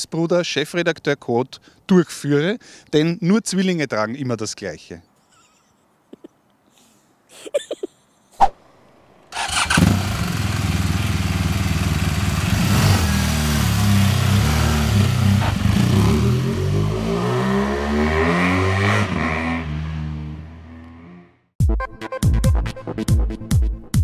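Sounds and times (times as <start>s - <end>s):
motorcycle engine running: 9.4s - 16.2s.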